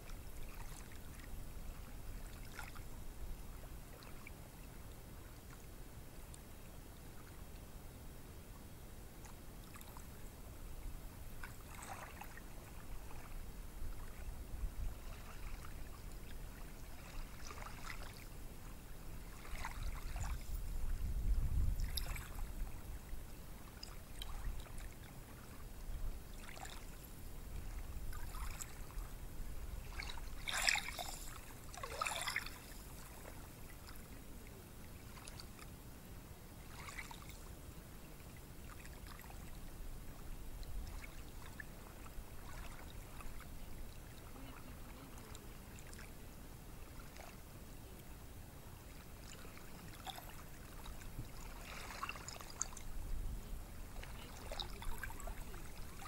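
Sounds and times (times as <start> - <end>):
small waves washing onto a beach: 0.0 - 7.6, 8.6 - 56.0.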